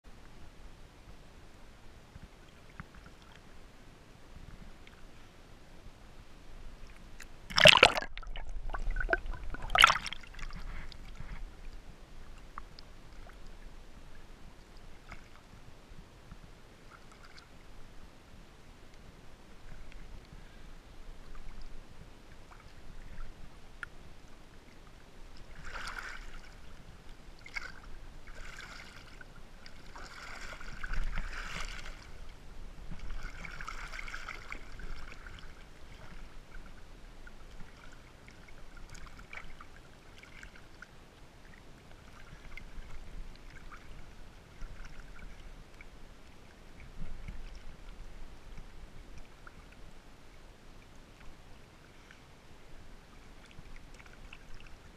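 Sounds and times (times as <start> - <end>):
muffled water splashing: 0.1 - 54.9.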